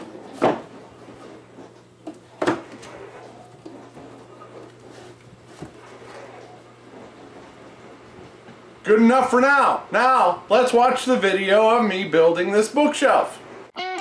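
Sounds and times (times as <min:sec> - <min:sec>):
dishwasher humming: 0:00.0 - 0:14.0
books knocking on wooden shelf: 0:00.4 - 0:00.7.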